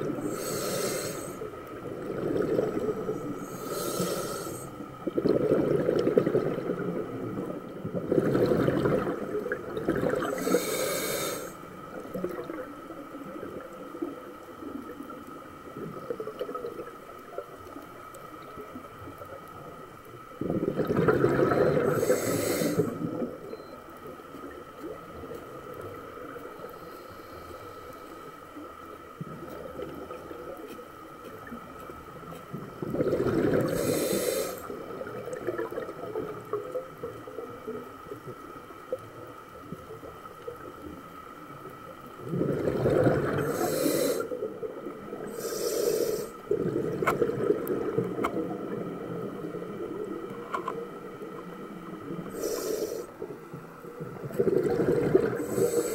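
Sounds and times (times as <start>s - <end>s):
diver breathing through regulator: 0.0s - 1.5s, 2.3s - 4.9s, 10.0s - 11.6s, 21.2s - 23.1s, 26.7s - 28.4s, 33.0s - 34.8s, 42.6s - 44.5s, 45.2s - 46.6s, 52.2s - 53.2s, 54.4s - 55.9s
faint steady hum: 0.0s - 55.9s
water noise: 0.0s - 55.9s
exhaled bubbles rushing: 1.7s - 3.5s, 5.0s - 10.6s, 20.4s - 23.4s, 32.7s - 34.0s, 34.8s - 37.1s, 42.2s - 43.7s, 46.5s - 52.3s, 53.8s - 55.9s.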